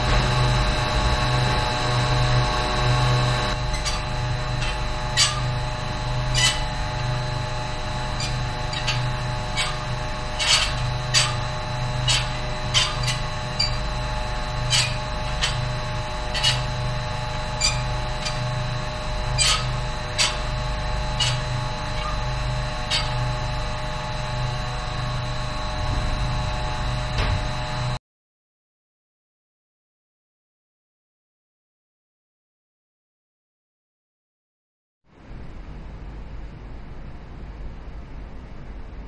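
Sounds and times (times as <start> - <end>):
machinery hum with low throb: 0.0 - 28.0, 35.1 - 39.0.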